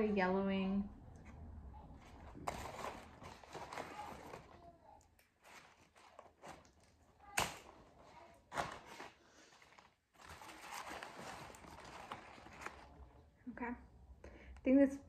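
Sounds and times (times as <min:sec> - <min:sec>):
rustling of moss and plastic: 0:07.6 - 0:13.1.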